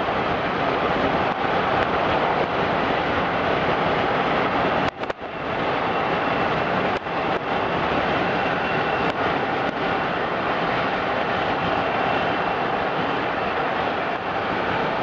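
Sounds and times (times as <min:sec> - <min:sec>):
steam locomotive exhaust rushing: 0:00.0 - 0:15.0
wind rush: 0:00.0 - 0:15.0.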